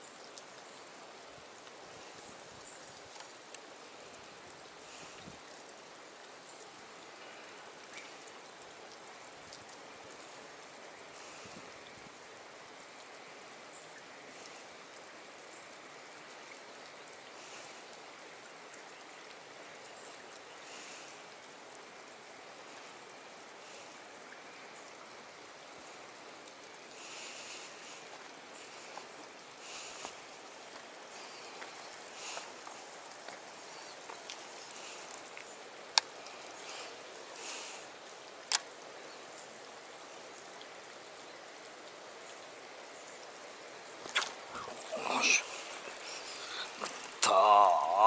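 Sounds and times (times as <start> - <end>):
water hissing around rocks: 0.0 - 48.0.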